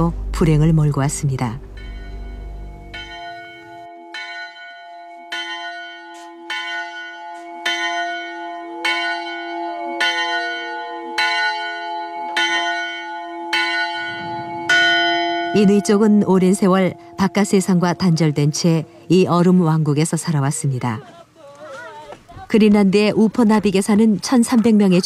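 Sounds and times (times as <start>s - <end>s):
bell ringing strokes: 1.8s - 19.5s.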